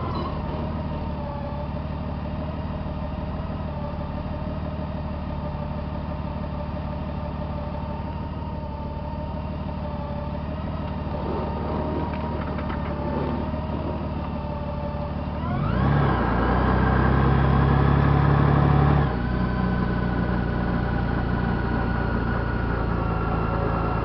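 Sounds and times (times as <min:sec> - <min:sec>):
motorcycle engine revving: 0:09.8 - 0:24.0.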